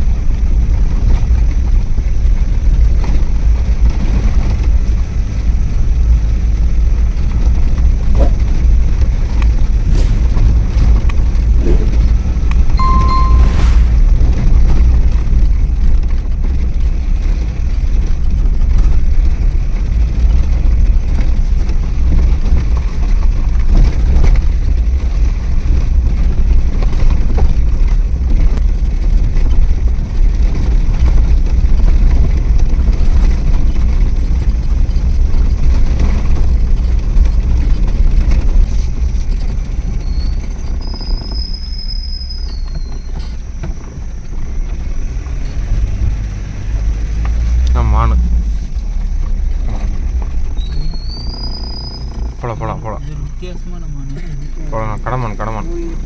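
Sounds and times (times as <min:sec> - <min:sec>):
car driving rumble: 0:00.0 - 0:56.0
thin high steady tone: 0:12.8 - 0:14.1.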